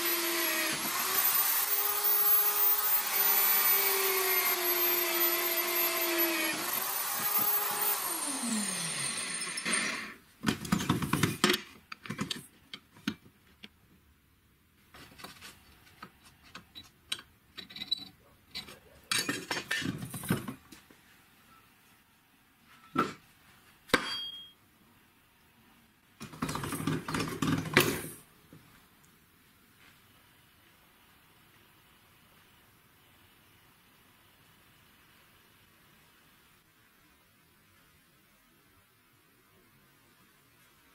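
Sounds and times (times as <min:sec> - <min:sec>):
electric drill motor whining: 0:00.0 - 0:10.2.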